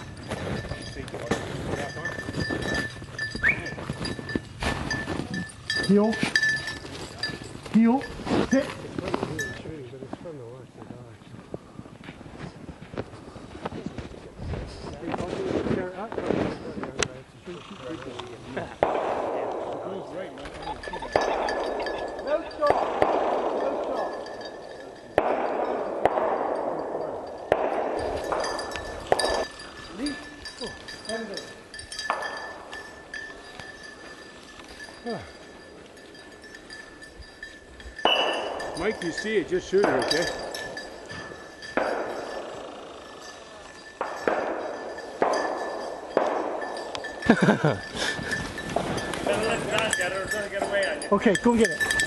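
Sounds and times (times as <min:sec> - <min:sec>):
shotgun shots echoing: 0:18.8 - 0:20.2, 0:21.1 - 0:24.5, 0:25.1 - 0:29.4, 0:38.0 - 0:39.0, 0:41.7 - 0:42.7, 0:44.0 - 0:46.9.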